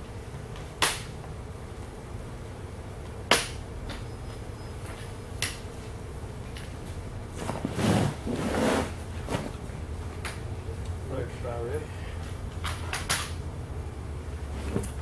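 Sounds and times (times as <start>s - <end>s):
frame shuffling and scraping: 6.9s - 9.8s, 14.4s - 15.0s.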